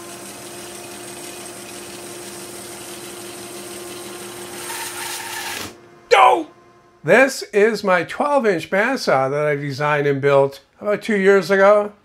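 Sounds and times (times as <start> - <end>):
band saw running: 0.0 - 5.8
saw blade cutting log: 0.0 - 5.8.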